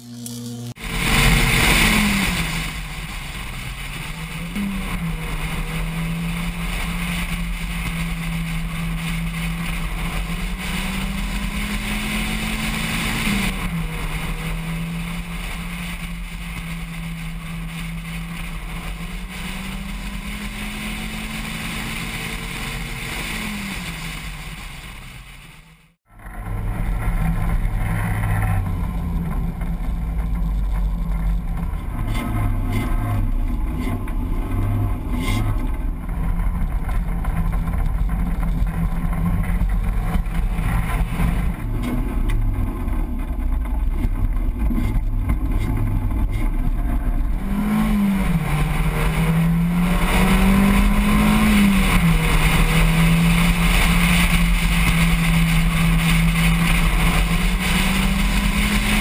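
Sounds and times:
race car engine at speed: 0:00.0 - 0:59.0
wind rush: 0:00.8 - 0:25.7, 0:46.1 - 0:59.0.

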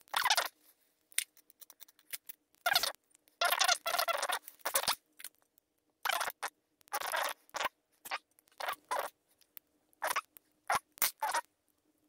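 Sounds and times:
metal lock parts scraping and clicking: 0:01.1 - 0:02.4.

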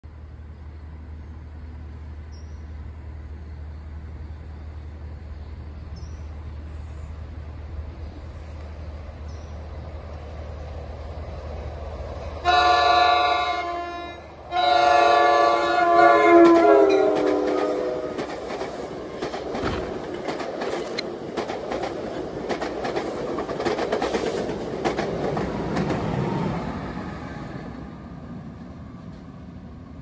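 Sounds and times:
train horn blasts: 0:12.4 - 0:18.3.

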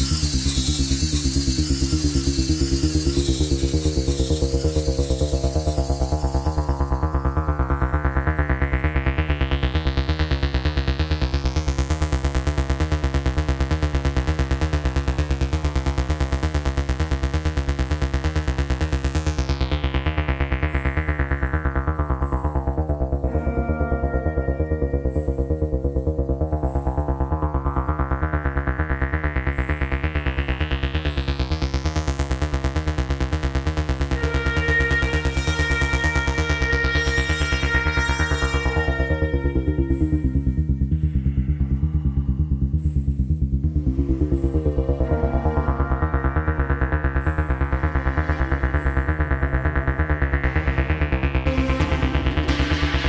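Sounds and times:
deep synth bass: 0:00.0 - 0:53.0
synthesizer pulsing pattern: 0:21.7 - 0:29.4, 0:33.3 - 0:53.0.

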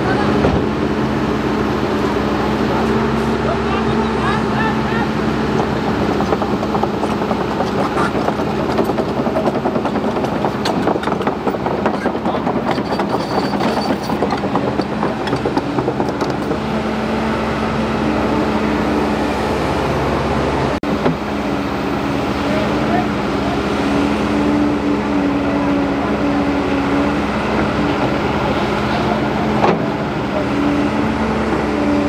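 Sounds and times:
excavator diesel engine under load: 0:00.0 - 0:32.0.

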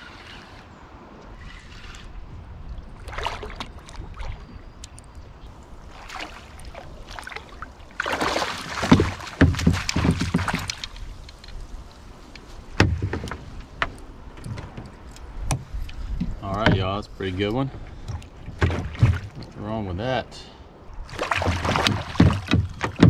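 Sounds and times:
fish splashing at water surface: 0:05.9 - 0:10.9, 0:21.1 - 0:23.0
net knocking against kayak hull: 0:08.0 - 0:11.1, 0:12.7 - 0:17.0, 0:18.1 - 0:19.5, 0:21.2 - 0:23.0.

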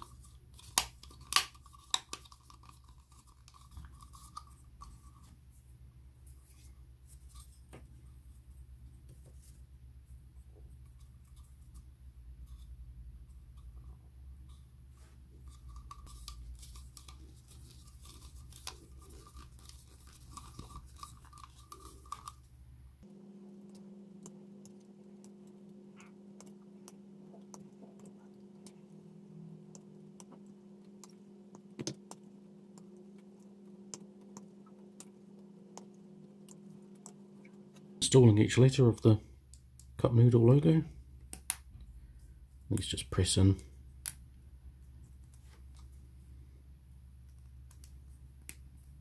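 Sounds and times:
steady low hum: 0:00.0 - 0:49.0.

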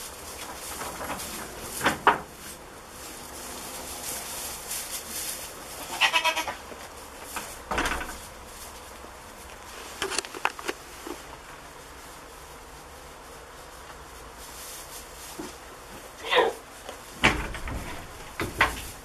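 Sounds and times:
goats rustling on straw: 0:00.0 - 0:19.0
goat bleating: 0:05.8 - 0:06.6.

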